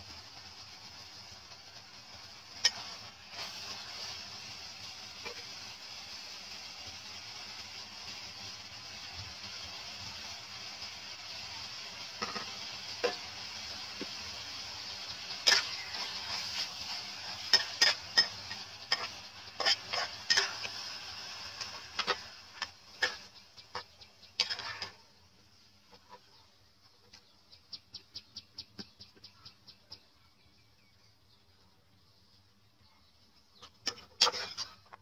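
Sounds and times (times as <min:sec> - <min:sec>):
food sizzling in a frying pan: 0:00.0 - 0:27.2, 0:33.6 - 0:35.0
metal spatula scraping a pan: 0:02.6 - 0:04.3, 0:05.2 - 0:05.6, 0:12.0 - 0:25.1, 0:33.6 - 0:35.0.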